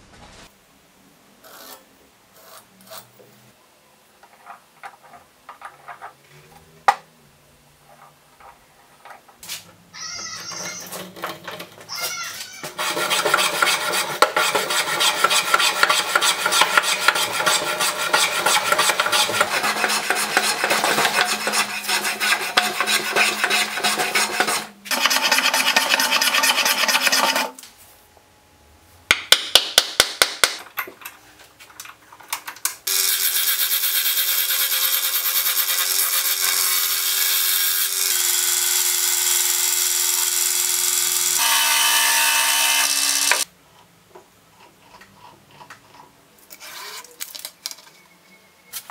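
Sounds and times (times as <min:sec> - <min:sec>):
hand plane strokes on board: 0:12.6 - 0:27.5
gouge chattering on lathe: 0:12.7 - 0:27.5.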